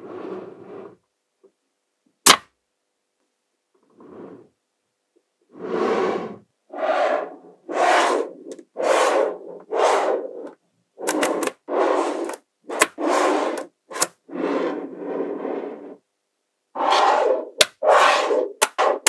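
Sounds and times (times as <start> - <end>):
magnetic balls scraping together: 5.6 - 16.0, 16.8 - 19.0.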